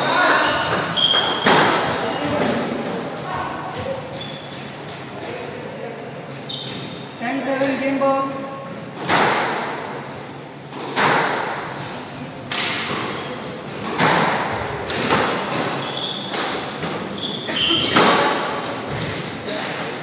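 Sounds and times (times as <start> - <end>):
shoe squeaks: 0.1 - 2.4, 3.8 - 4.9, 6.4 - 7.2, 15.7 - 18.2
squash ball hits: 0.2 - 2.8, 9.0 - 9.9, 10.7 - 11.8, 13.8 - 19.7.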